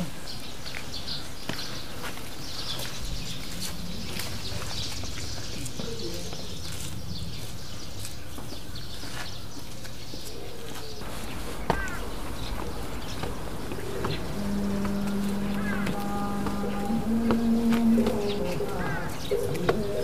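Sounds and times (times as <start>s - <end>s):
outdoor background noise: 0.0s - 20.0s
soft low calls: 10.3s - 20.0s.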